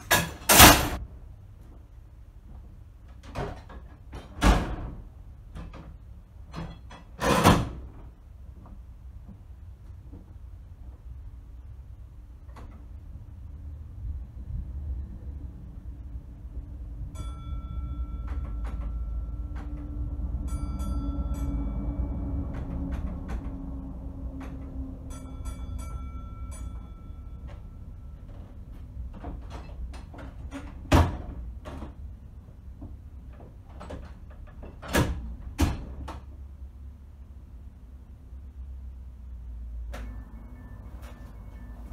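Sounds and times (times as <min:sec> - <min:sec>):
low rumble of a train: 0:00.0 - 0:41.9
signal box block bells ringing: 0:17.1 - 0:29.1, 0:40.0 - 0:41.9
levers clicking and clunking: 0:18.0 - 0:20.1, 0:22.3 - 0:36.4.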